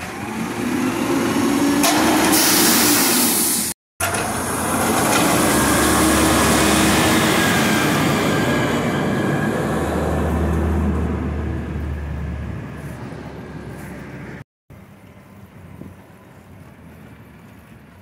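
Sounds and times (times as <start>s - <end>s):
garbage truck diesel rumble: 4.0s - 14.4s.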